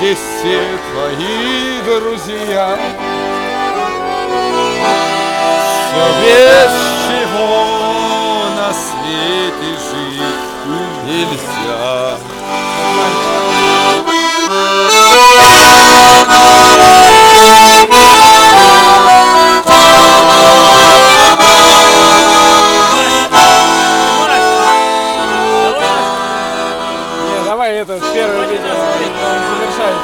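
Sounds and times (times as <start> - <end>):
button accordion playing: 0.0 - 30.0.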